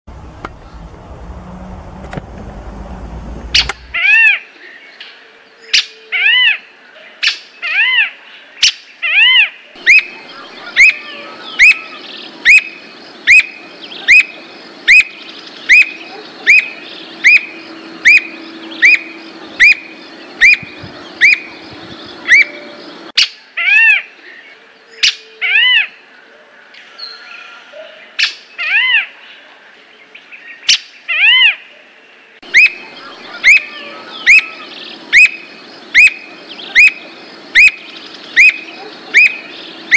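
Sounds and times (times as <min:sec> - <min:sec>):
bird calling: 0:03.5 - 0:04.5, 0:09.1 - 0:24.0, 0:32.4 - 0:39.9.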